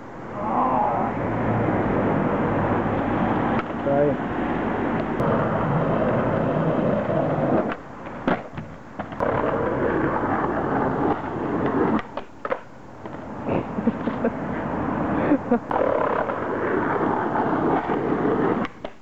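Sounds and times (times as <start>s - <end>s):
skateboard wheels rolling on pavement: 0.0s - 19.0s
skateboard clacks: 3.5s - 3.8s, 5.0s - 13.4s, 15.6s - 19.0s
skateboard pop: 7.6s - 13.2s, 15.7s - 17.0s, 17.7s - 19.0s.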